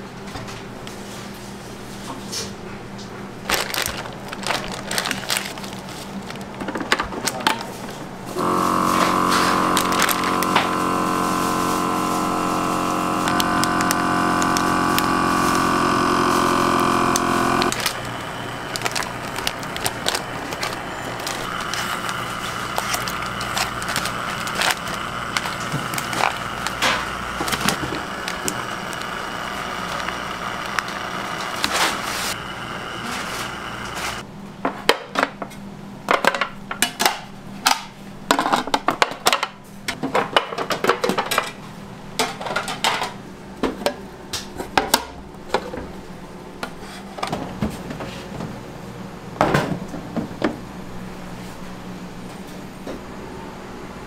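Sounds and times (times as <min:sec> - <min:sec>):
vacuum sealer running: 0:08.3 - 0:34.3.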